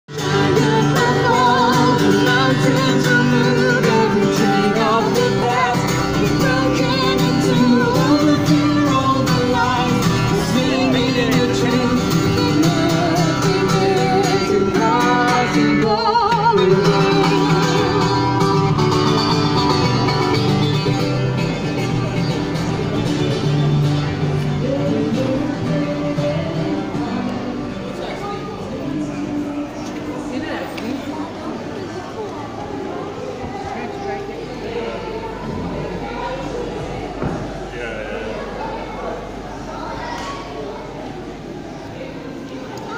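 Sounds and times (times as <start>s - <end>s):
man and woman singing: 0.1s - 18.9s, 24.4s - 30.6s
acoustic guitar strumming: 0.1s - 29.6s.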